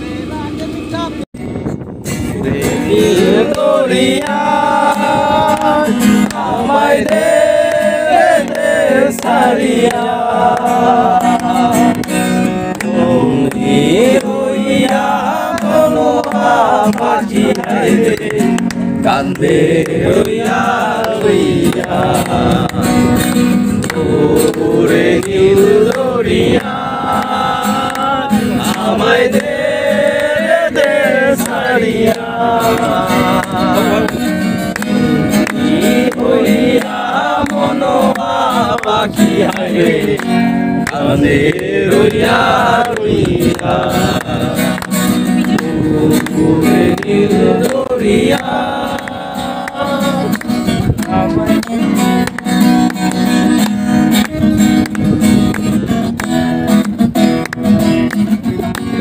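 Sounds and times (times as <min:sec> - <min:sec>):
acoustic guitar: 0:00.0 - 0:59.0
man singing: 0:02.3 - 0:08.3, 0:12.8 - 0:23.2, 0:23.9 - 0:34.2, 0:40.9 - 0:52.0.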